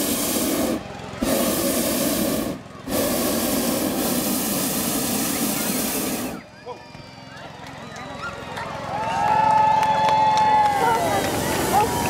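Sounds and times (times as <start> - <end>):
propane burner firing: 0.0 - 6.5, 10.5 - 12.0.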